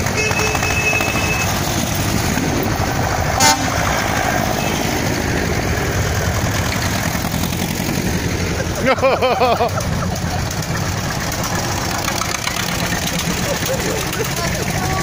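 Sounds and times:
tractor engines running: 0.0s - 15.0s
short horn toot: 3.4s - 3.8s.

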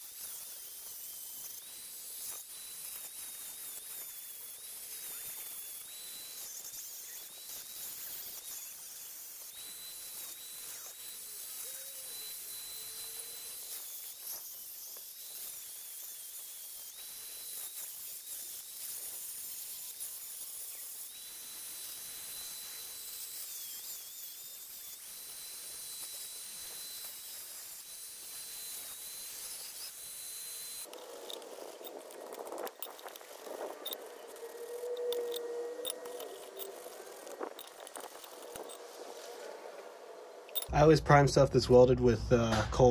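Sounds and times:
angle grinder cutting steel: 0.0s - 42.9s.

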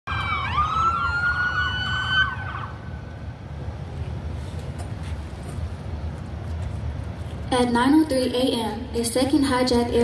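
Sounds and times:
sirens wailing: 0.1s - 3.1s.

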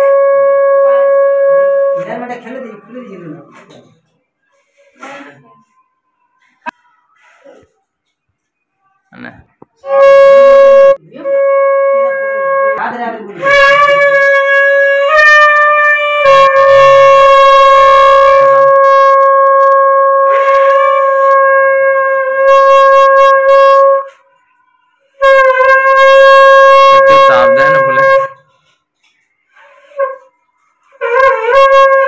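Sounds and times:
conch shell blasts: 9.8s - 12.8s, 13.4s - 24.2s, 25.2s - 28.4s, 31.0s - 32.0s.

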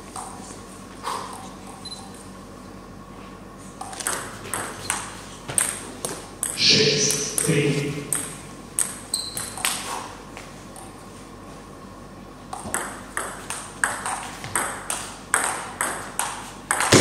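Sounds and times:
table tennis ball clicking off paddles: 12.5s - 17.0s.

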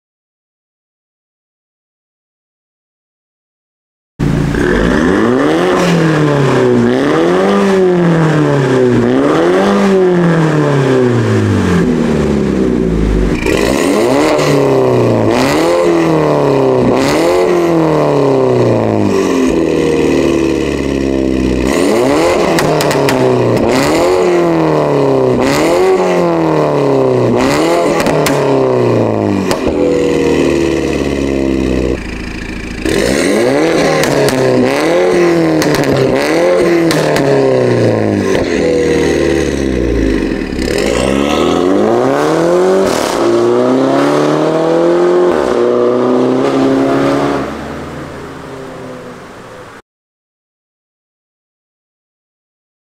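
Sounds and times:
car engine revving: 4.2s - 49.8s
exhaust pops: 22.3s - 23.8s, 27.9s - 28.5s, 29.4s - 29.9s, 31.8s - 38.6s.

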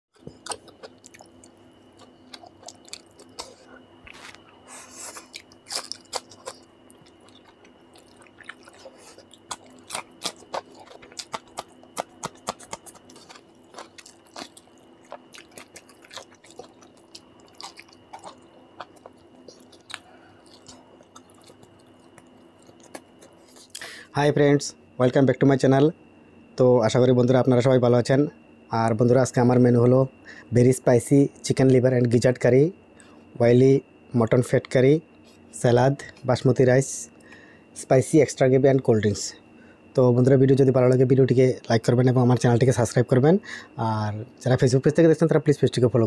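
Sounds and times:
man chewing and lip smacking: 0.2s - 24.0s
faint high whine: 0.2s - 46.0s.

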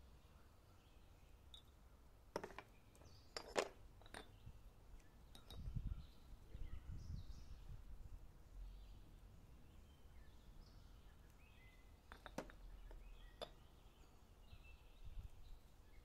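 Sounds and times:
ceramic pots and spoon clinking: 3.3s - 4.4s, 5.3s - 5.8s, 12.1s - 13.7s.

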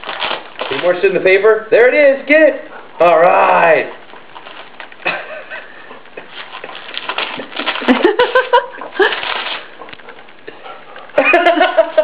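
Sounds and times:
wrapping paper crackling: 0.0s - 1.2s, 3.9s - 10.4s.

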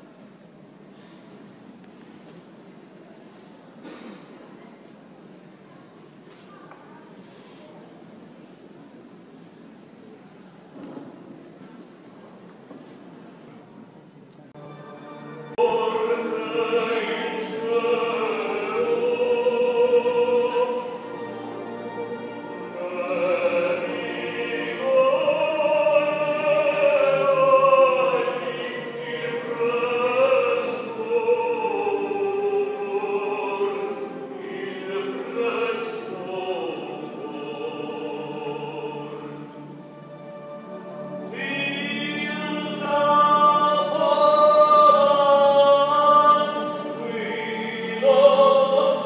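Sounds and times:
singing with long held notes: 14.6s - 49.0s.

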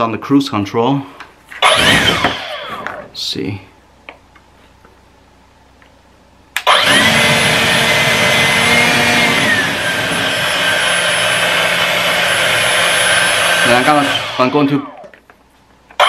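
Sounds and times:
leaf blower rushing air: 1.6s - 2.8s, 6.6s - 14.7s.

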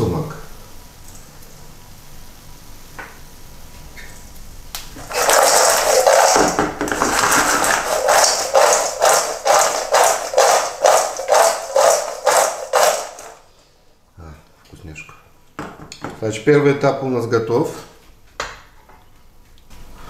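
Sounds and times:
pita cubes rattling in metal bowl: 5.0s - 13.4s.

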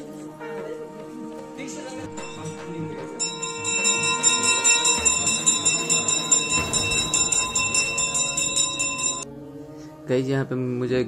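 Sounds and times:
bell rung rapidly: 2.2s - 9.2s.

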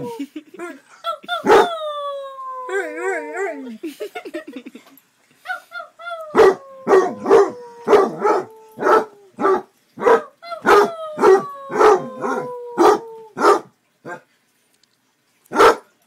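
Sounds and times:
hound howling: 6.3s - 9.4s, 10.6s - 13.4s
hound barking: 6.4s - 14.2s, 15.5s - 15.9s.

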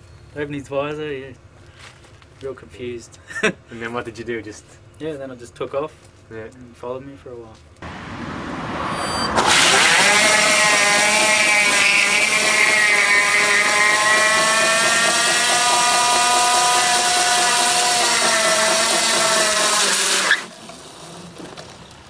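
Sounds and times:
motorcycle tyre screeching: 7.9s - 22.0s.

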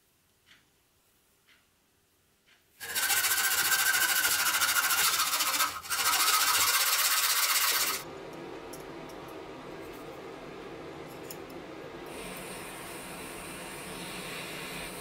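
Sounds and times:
quiet steady background sound: 0.0s - 2.8s
hacksaw rasping through metal tube: 2.8s - 8.0s.

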